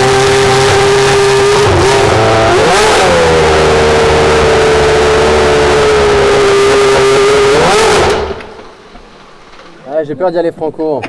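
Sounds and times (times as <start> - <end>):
racing car engine at high revs: 0.0 - 8.8.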